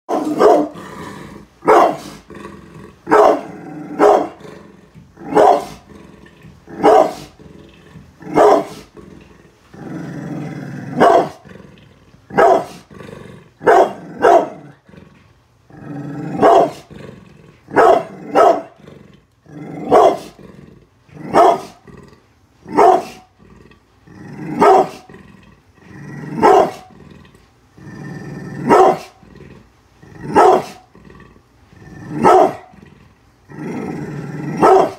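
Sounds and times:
dog barking: 0.1 - 0.8, 1.6 - 2.2, 3.1 - 4.4, 5.3 - 5.8, 6.8 - 7.3, 8.3 - 8.8, 11.0 - 11.4, 12.3 - 12.8, 13.6 - 14.6, 16.4 - 16.9, 17.7 - 18.8, 19.8 - 20.3, 21.3 - 21.8, 22.7 - 23.3, 24.6 - 25.0, 26.4 - 26.9, 28.6 - 29.2, 30.3 - 30.8, 32.2 - 32.7, 34.6 - 34.9
dog growling low: 0.2 - 22.3, 23.2 - 34.9.

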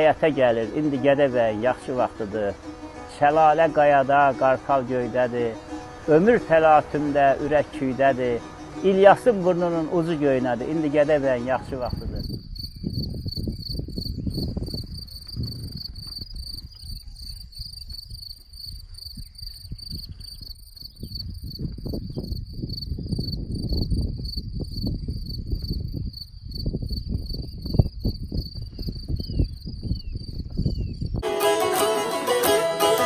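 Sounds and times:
wind buffeting microphone: 11.6 - 31.2
crickets chirping: 11.8 - 31.2.

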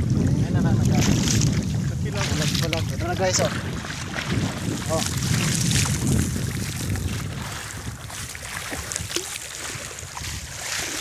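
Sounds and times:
water splashing around wading legs: 0.0 - 11.0
wind on microphone: 0.0 - 11.0.

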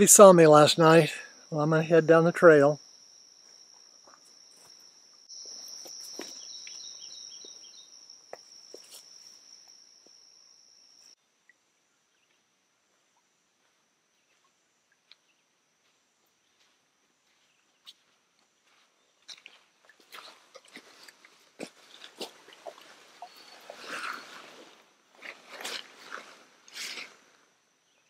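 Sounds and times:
high-pitched insect trill: 0.0 - 11.2, 22.7 - 28.0
footsteps on dirt trail: 3.4 - 10.2, 15.1 - 27.1.

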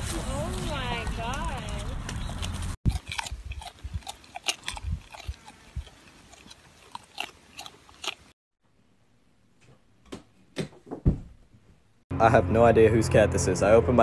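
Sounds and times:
alpaca chewing: 0.4 - 8.4.

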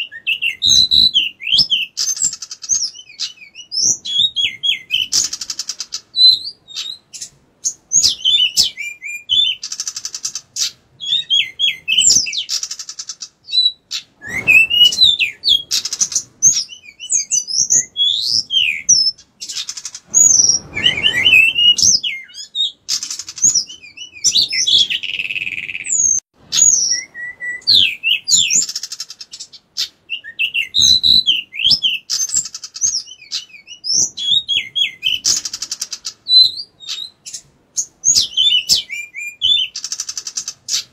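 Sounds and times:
bird singing: 0.0 - 40.9
low rustles: 14.2 - 16.0, 19.8 - 22.1.

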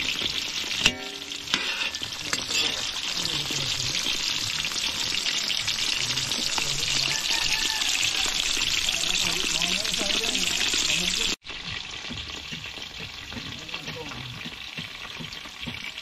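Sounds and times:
ladle clanking on wok: 0.0 - 4.2
food sizzling in hot oil: 0.0 - 16.0.

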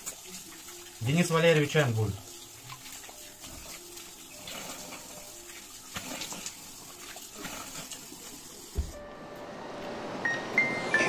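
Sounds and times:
tap water splashing on hands: 0.0 - 0.9.

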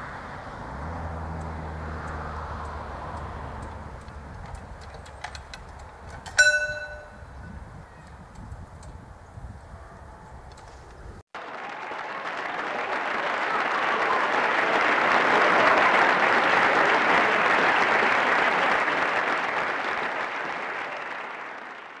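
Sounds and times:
crowd applause: 11.4 - 22.0.

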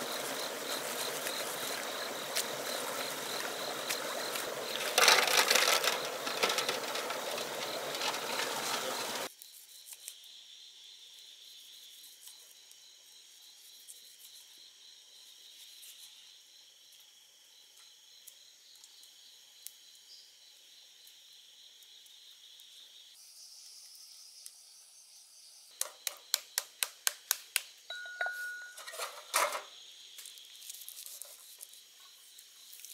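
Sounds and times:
water splashing and sloshing: 0.0 - 9.3
crickets trilling: 0.0 - 32.9.

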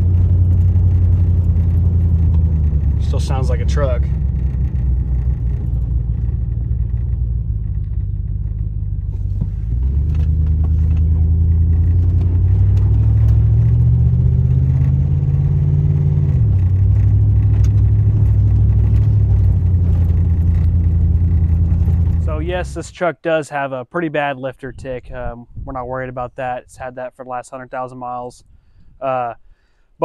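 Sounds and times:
truck exhaust drone: 0.0 - 23.0.

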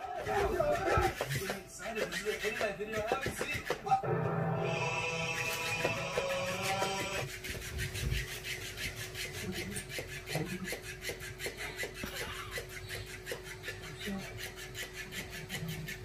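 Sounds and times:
rhythmic rasping: 0.0 - 16.0.

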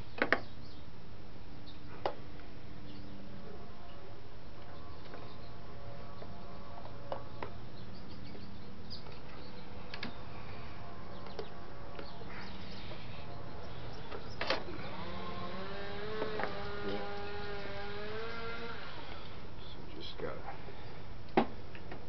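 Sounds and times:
steady low hum: 0.0 - 22.0
wavering rising tone: 9.6 - 19.5.

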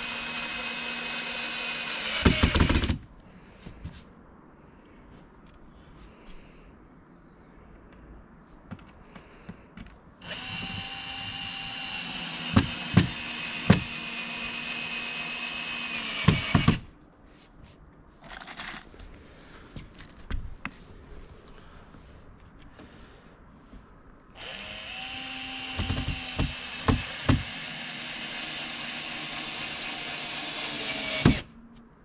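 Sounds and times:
cordless drill driving into wood: 0.0 - 3.0, 10.2 - 16.9, 24.4 - 31.5
drill clicks: 0.0 - 3.0, 10.2 - 16.8, 24.4 - 31.5.

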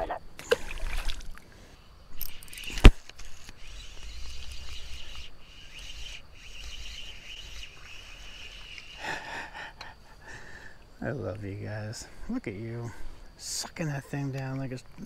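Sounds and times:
insects droning: 0.0 - 15.0
faint bird chirps: 1.7 - 9.0.

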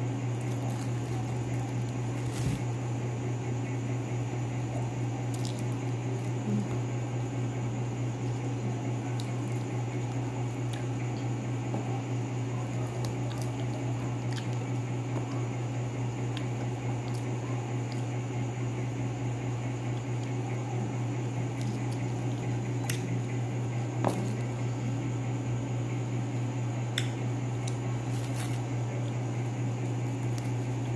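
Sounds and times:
steady low hum: 0.0 - 30.9
fruit skins squishing: 0.1 - 2.9, 4.7 - 6.8, 12.6 - 15.4, 21.4 - 23.2, 27.0 - 30.9
plastic bag crinkling: 0.3 - 2.8, 28.0 - 30.9.

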